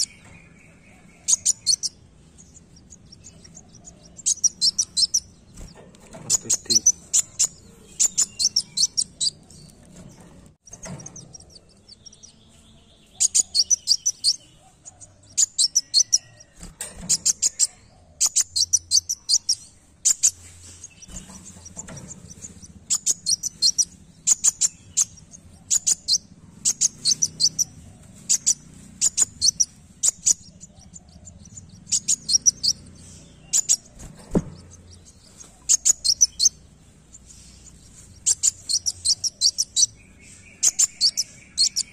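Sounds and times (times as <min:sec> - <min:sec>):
bird chirping rapidly: 0:00.0 - 0:41.9.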